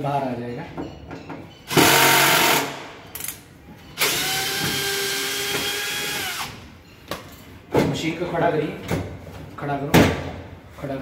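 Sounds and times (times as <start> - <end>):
cordless drill whirring: 4.0 - 6.6.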